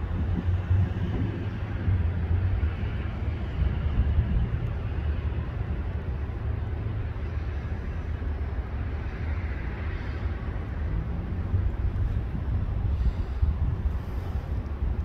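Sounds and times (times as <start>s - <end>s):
distant freight train rumbling: 0.0s - 15.0s.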